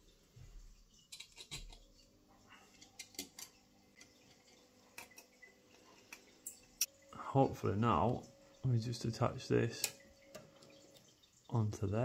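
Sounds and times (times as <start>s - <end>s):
metal key and screws clicking: 1.1s - 1.9s.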